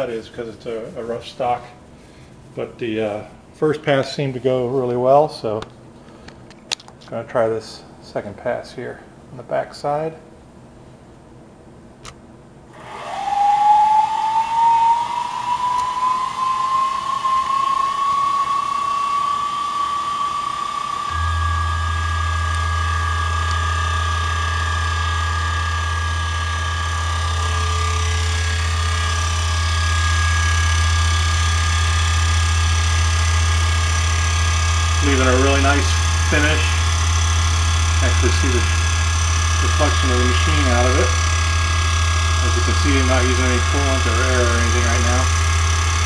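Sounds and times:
low drone of tool cutting metal: 12.7 - 46.0
mill spindle whining: 12.7 - 46.0.

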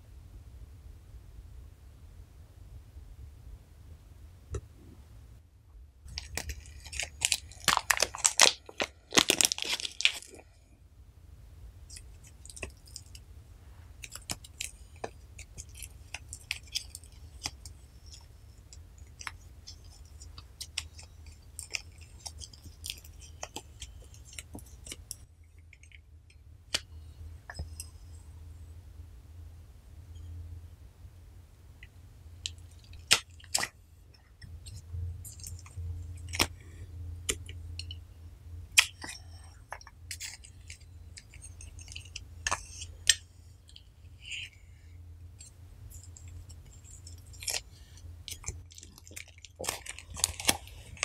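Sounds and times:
slime crackling and popping: 6.1 - 10.5, 14.0 - 18.4, 19.0 - 26.0, 32.4 - 33.8, 34.7 - 36.6, 45.4 - 51.0.

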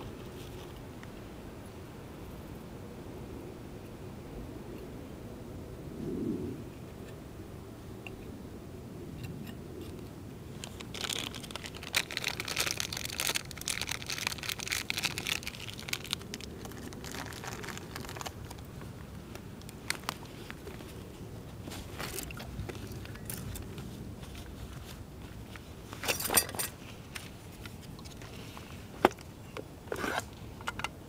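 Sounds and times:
crackly clicks: 9.2 - 20.6
rustling and crinkling gear: 9.8 - 30.9.

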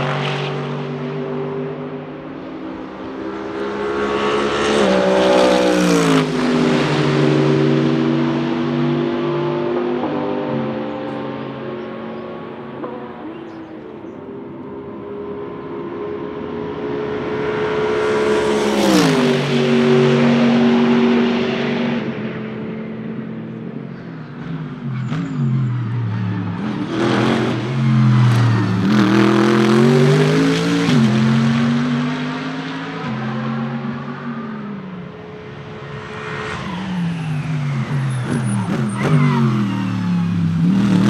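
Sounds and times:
race cars passing by: 0.0 - 41.0.

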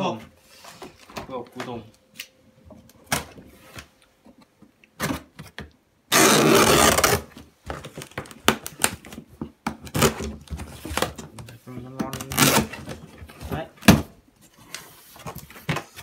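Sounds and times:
harsh tearing noise: 6.1 - 7.3, 12.2 - 12.7
knife scraping packing tape: 6.1 - 7.3.

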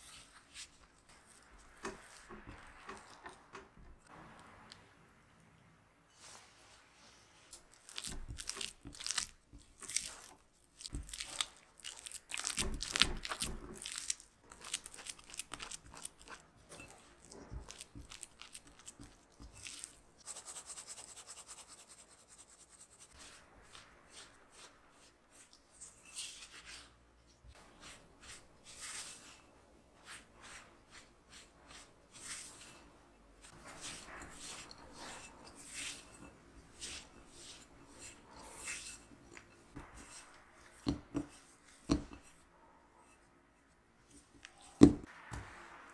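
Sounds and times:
spatula scraping glass bowl: 30.1 - 42.4.

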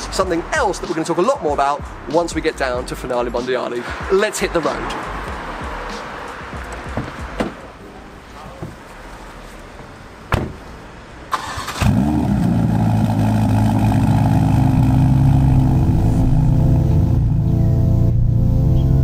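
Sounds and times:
car door shutting: 6.6 - 7.7, 10.3 - 10.7
car engine starting and idling: 9.1 - 19.0.

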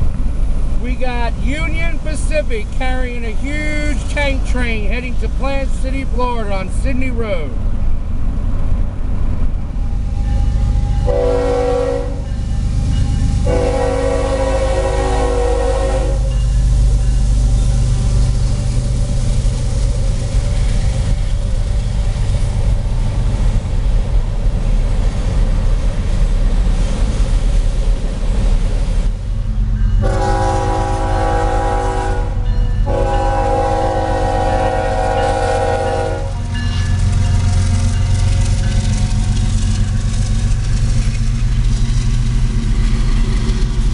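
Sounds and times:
freight cars rumbling past: 0.0 - 43.9
locomotive horn blasts: 10.1 - 16.4, 30.0 - 36.7.

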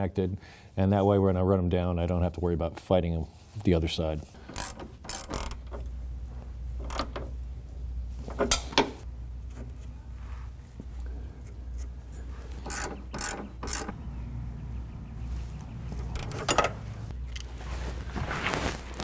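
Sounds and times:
steady low hum: 4.0 - 18.4
wrench clicking and rattling: 4.4 - 5.9, 6.8 - 7.4, 12.5 - 13.9.

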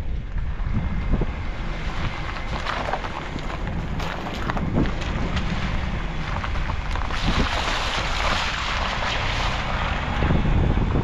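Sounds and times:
low engine and road rumble: 0.0 - 11.0
wind buffeting microphone: 0.0 - 11.0
tyres hissing through mud: 7.1 - 10.2.

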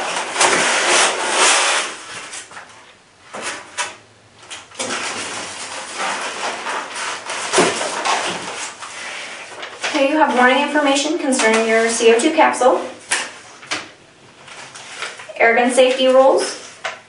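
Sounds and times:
foam lid scraping: 0.0 - 2.5
plastic wrapping rustling: 0.0 - 17.0.

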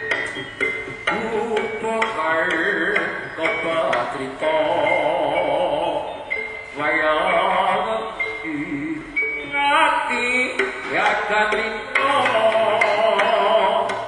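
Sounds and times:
struck gamelan percussion: 0.0 - 14.0
wavering voice-like melody: 0.8 - 14.0.

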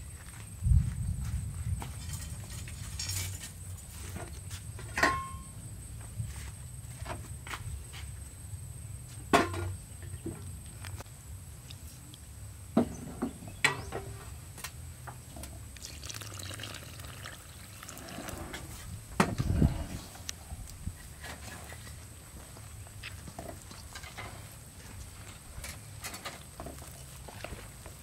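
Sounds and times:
liquid pouring into bowl: 15.8 - 18.4.

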